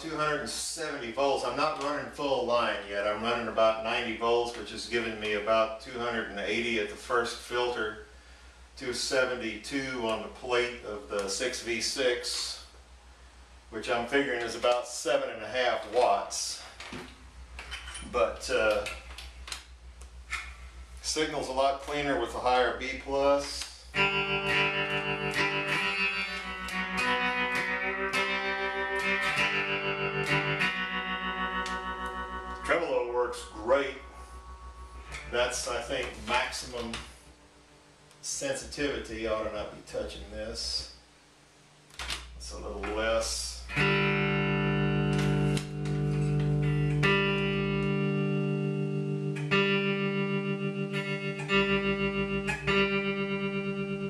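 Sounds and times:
amplifier hum: 0.0 - 54.0
electric guitar with tremolo: 23.4 - 38.2, 43.6 - 54.0.

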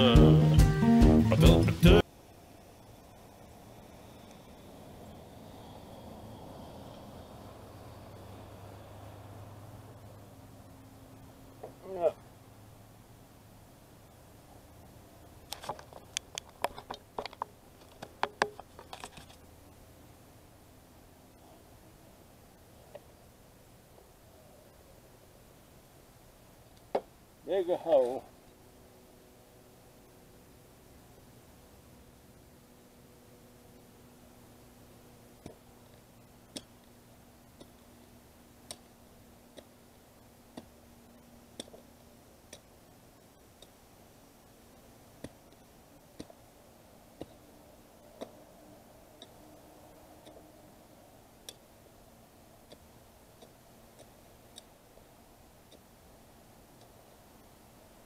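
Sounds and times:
hand hoe chopping sandy soil: 37.5 - 39.9, 40.5 - 42.7, 45.1 - 46.4, 47.1 - 47.5, 48.1 - 48.4, 52.6 - 54.7.

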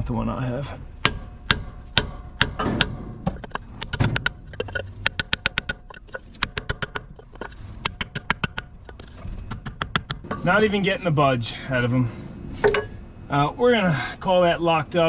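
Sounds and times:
wooden block hammering on metal: 0.9 - 10.4.

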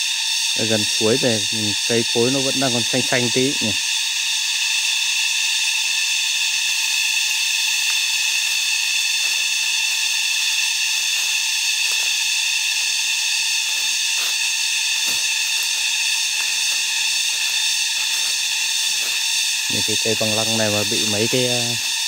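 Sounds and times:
cicadas buzzing: 0.0 - 22.0
footsteps in dry leaves: 5.5 - 22.0.

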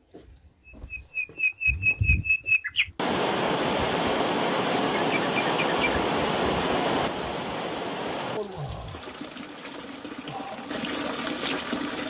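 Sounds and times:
bird chirping: 0.6 - 3.0, 4.9 - 6.1
mountain stream over rocks: 3.0 - 9.3.

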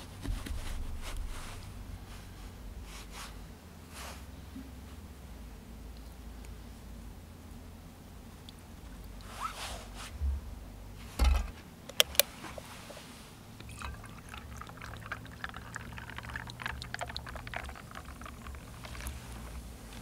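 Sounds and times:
sharp clicks: 11.9 - 12.3
liquid pouring into container: 13.6 - 20.0
fine crackling ticks: 14.3 - 20.0.

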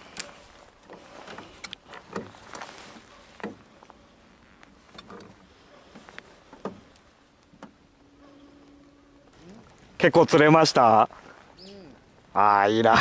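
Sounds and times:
light knocks and clicks: 0.2 - 4.0, 4.9 - 7.8.

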